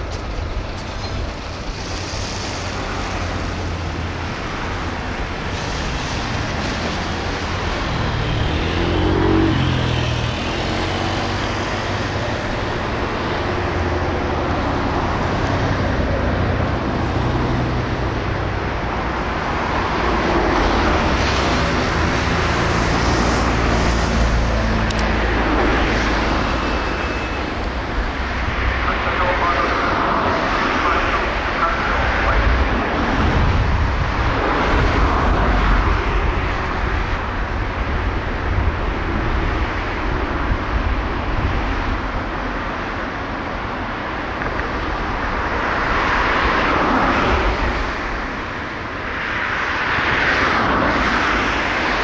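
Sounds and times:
rumble of passing vehicles: 0.0 - 52.0
engine note rising and falling: 3.0 - 18.7.

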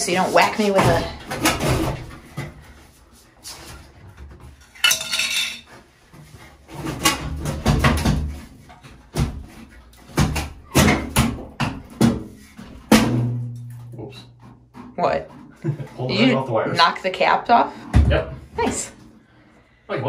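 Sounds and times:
cabinet clanking and rattling: 0.6 - 2.6, 6.3 - 13.0.

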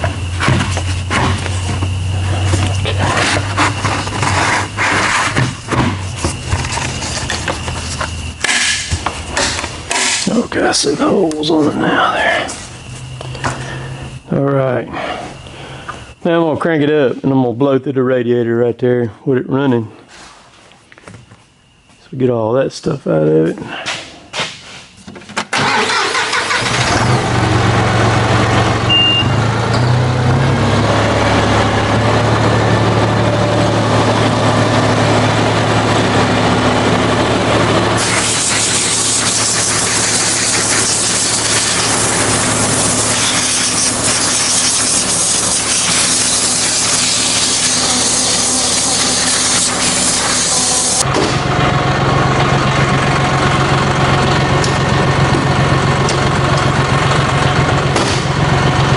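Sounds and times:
tractor diesel engine idling: 25.6 - 58.9
compressed air hissing: 38.0 - 51.0.

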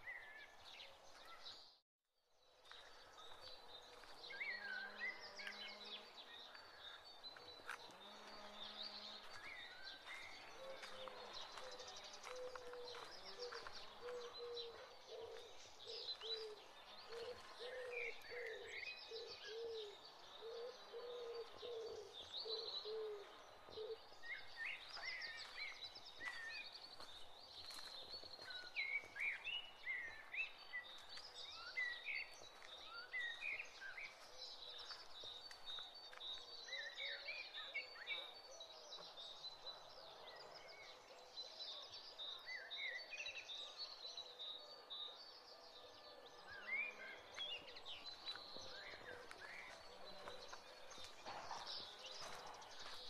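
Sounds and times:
small birds chirping: 2.4 - 53.0
dove cooing: 10.6 - 24.1.

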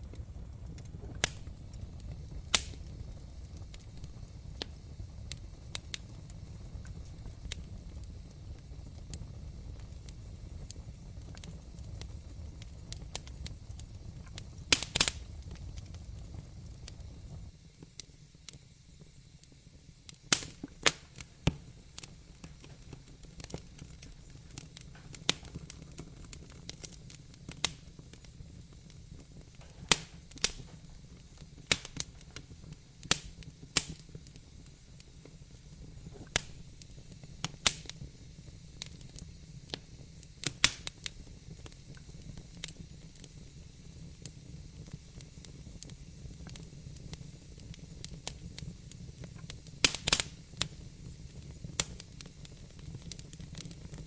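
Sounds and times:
low steady hiss: 0.0 - 54.0
wood fire crackling: 0.0 - 54.0.

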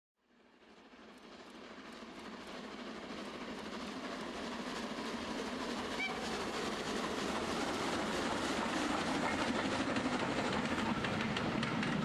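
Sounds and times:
model train wheels clattering: 8.4 - 12.0.

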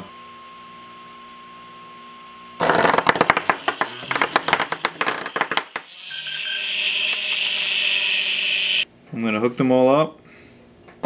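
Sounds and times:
clattering and rattling on table: 2.6 - 5.9.

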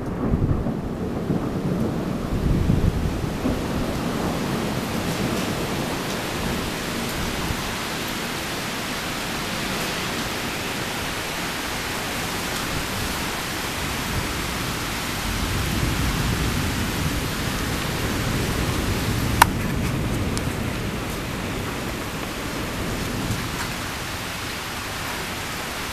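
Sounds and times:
low thunder rumble: 0.0 - 7.8, 12.6 - 24.5
heavy rain falling: 0.0 - 25.9.

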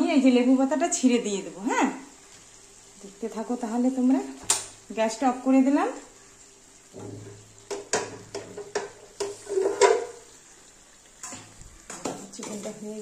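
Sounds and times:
steel cookware clattering: 7.0 - 10.2.

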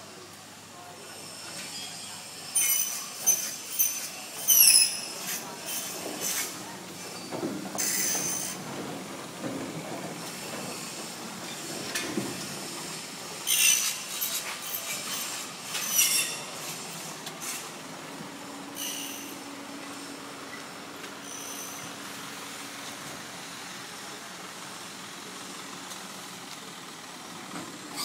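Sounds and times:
high-pitched metal squeals: 15.7 - 16.5, 18.8 - 19.4.

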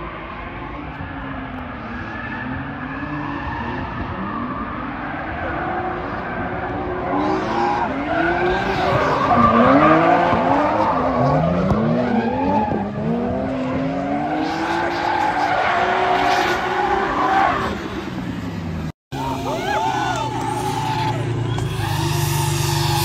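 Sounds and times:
car engines revving: 0.0 - 23.0
tyres screeching: 19.2 - 23.0.

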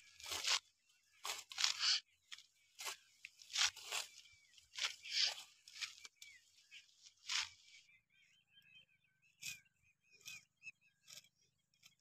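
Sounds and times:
leafy plants rustling: 0.0 - 7.8
faint bird chirps: 0.0 - 12.0
stalks being cut by hand: 0.1 - 6.2, 7.1 - 7.6.

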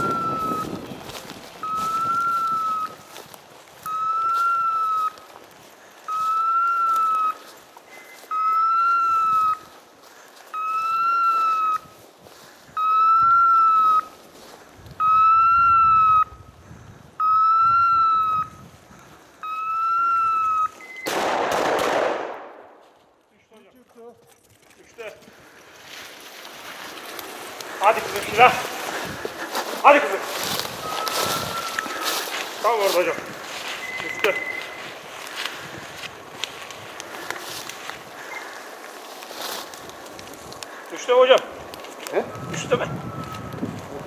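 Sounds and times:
high electronic beeps: 19.4 - 21.1, 30.8 - 32.0, 33.7 - 35.0.

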